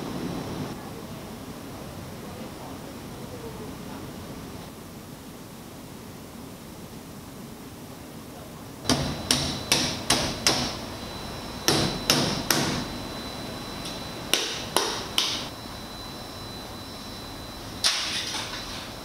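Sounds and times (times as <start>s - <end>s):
meat cleaver chopping: 8.9s - 10.8s.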